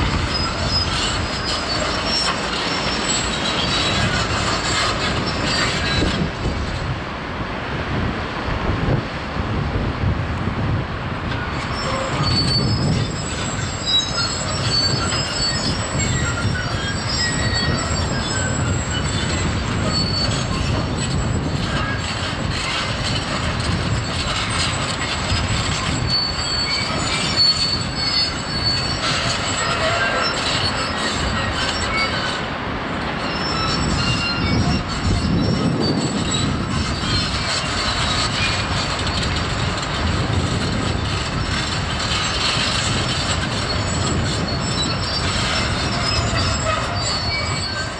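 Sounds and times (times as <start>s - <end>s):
high metallic squeals: 0.0s - 6.3s, 11.4s - 47.9s
construction machinery rumble: 11.1s - 47.9s.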